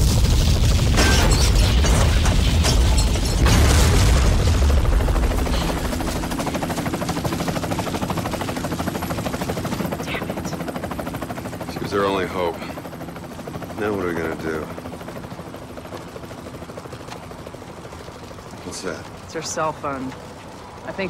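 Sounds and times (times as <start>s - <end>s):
heavy explosion rumble: 0.0s - 5.9s
crashing debris impacts: 0.0s - 6.0s
helicopter rotor pulsing: 0.0s - 21.0s.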